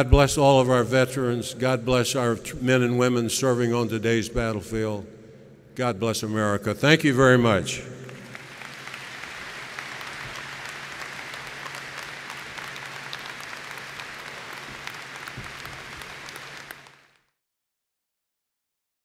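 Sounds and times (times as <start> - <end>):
audience applauding: 8.0 - 17.3.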